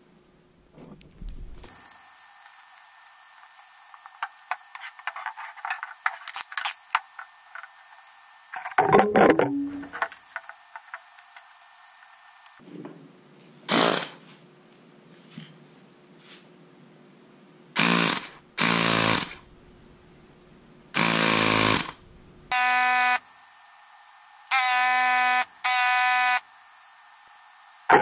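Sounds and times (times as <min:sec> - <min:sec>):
air inflator buzzing: 0:17.8 - 0:19.5, 0:21.0 - 0:23.2, 0:24.5 - 0:26.5.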